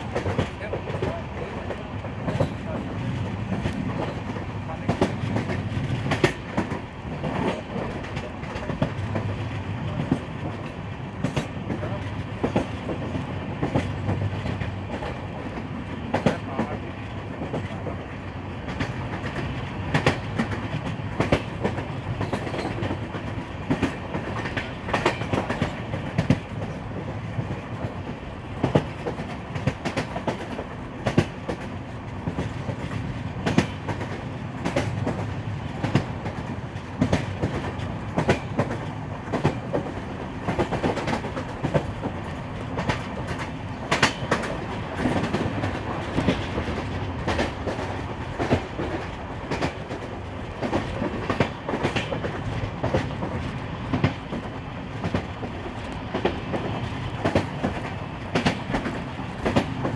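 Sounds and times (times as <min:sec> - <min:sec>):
train rumbling on track: 0:00.0 - 0:59.9
wheels clicking over rail joints: 0:18.7 - 0:59.9.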